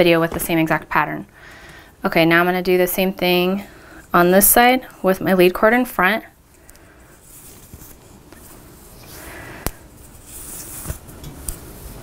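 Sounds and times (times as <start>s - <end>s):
cord rustling and sliding: 6.6s - 12.0s.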